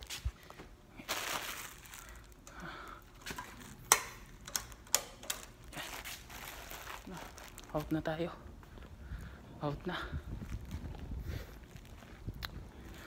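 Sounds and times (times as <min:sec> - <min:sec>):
soft rustling and shuffling: 0:00.0 - 0:02.4, 0:05.7 - 0:13.0.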